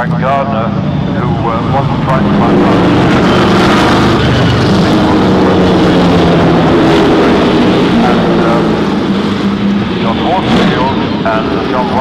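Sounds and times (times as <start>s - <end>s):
racing engine at high revs: 0.0s - 12.0s.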